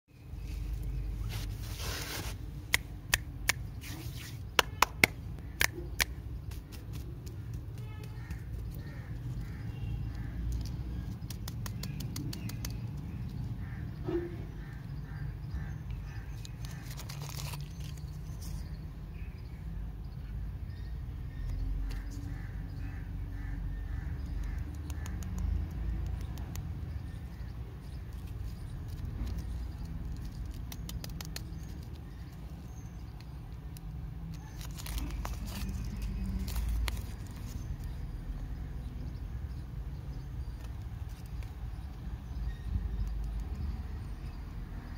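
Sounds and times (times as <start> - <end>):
wrappers rustling and crinkling: 1.2 - 2.4, 16.6 - 18.3, 34.4 - 37.6.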